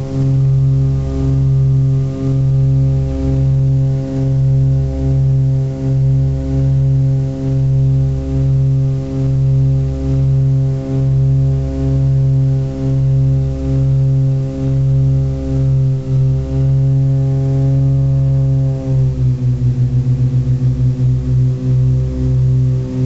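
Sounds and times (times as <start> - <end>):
pulsing propeller engine drone: 0.0 - 23.0.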